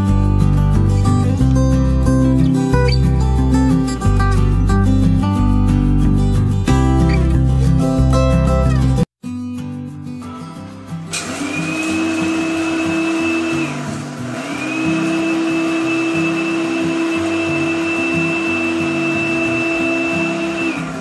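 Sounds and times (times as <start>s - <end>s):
electric coffee grinder whine: 11.1s - 21.0s.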